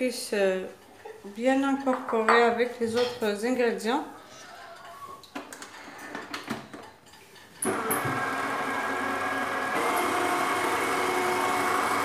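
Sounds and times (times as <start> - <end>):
stand mixer motor running: 7.6 - 12.0.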